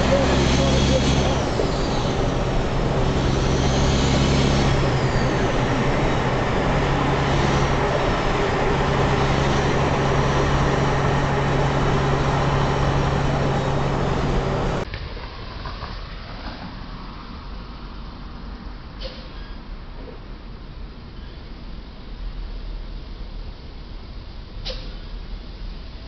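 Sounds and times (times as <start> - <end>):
diesel truck engine droning: 0.0 - 14.9
road and tyre noise: 0.0 - 26.0.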